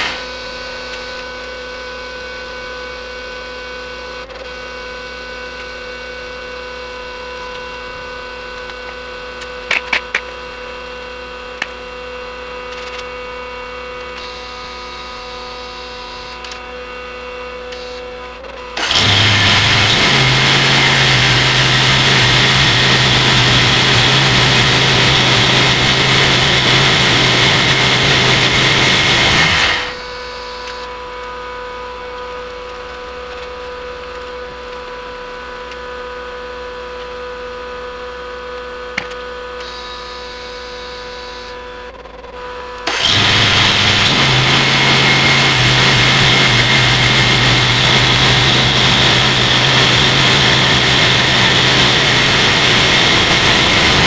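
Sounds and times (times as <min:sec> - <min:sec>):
band sawmill sawing log: 0:00.0 - 0:07.7, 0:18.6 - 0:30.2, 0:42.8 - 0:54.0
even hum: 0:00.0 - 0:54.0.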